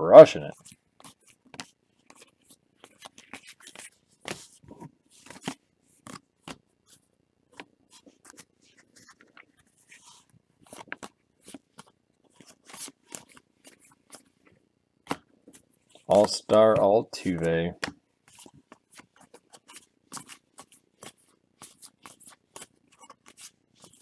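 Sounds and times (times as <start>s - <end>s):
cards snapping and sliding: 1.0s - 4.5s, 5.2s - 6.6s, 16.1s - 24.0s.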